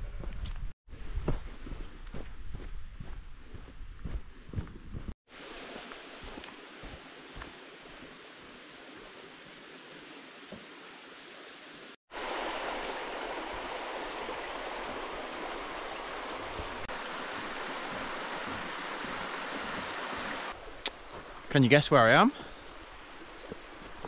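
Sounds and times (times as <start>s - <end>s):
stream running over stones: 5.3s - 24.0s.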